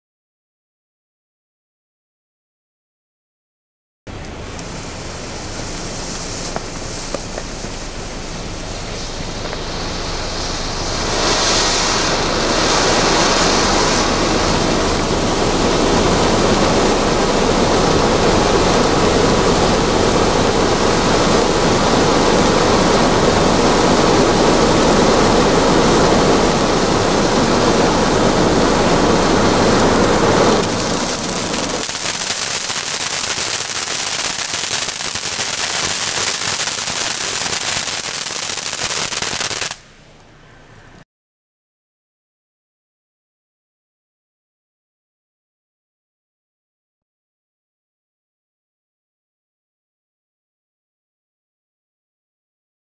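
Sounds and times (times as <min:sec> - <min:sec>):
firework fountain hissing: 0:04.1 - 0:40.0.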